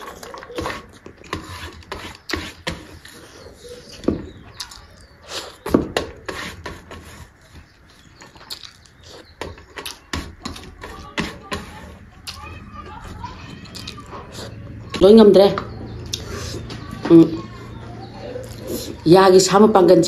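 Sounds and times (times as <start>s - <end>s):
fingers scraping steel plate: 0.0s - 4.8s, 5.4s - 8.3s, 9.0s - 13.6s
chewing and wet mouth clicks: 8.2s - 9.2s, 12.2s - 12.4s, 16.0s - 16.3s
lip smacks: 8.2s - 10.1s, 16.0s - 16.9s.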